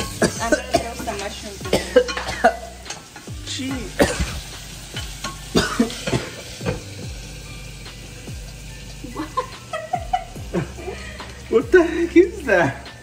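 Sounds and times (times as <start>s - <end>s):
food sizzling in a frying pan: 0.0s - 13.0s.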